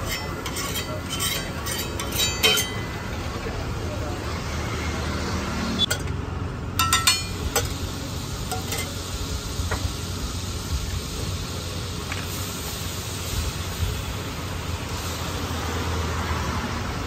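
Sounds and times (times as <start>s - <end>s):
steel spatula clicking on metal: 0.0s - 2.9s, 6.8s - 7.7s
butter sizzling on a griddle: 0.0s - 3.0s, 6.8s - 17.0s.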